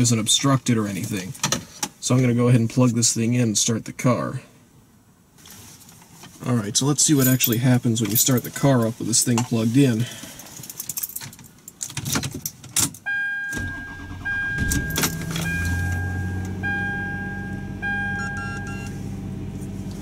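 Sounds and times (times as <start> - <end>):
keys jangling: 10.5 - 13.0
car engine starting and idling: 13.5 - 20.0
electronic chime: 14.3 - 18.9.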